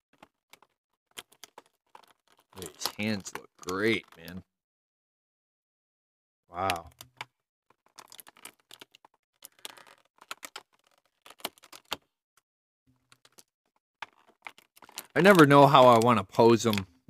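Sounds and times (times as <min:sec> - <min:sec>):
plastic pieces clicking on table: 0:00.1 - 0:04.4, 0:06.6 - 0:12.1, 0:13.0 - 0:16.9.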